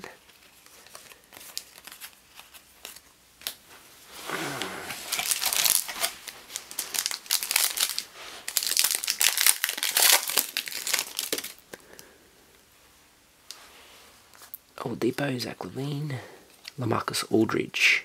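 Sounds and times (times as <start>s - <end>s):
foil wrapper crinkling: 0.0s - 3.6s, 5.0s - 11.7s.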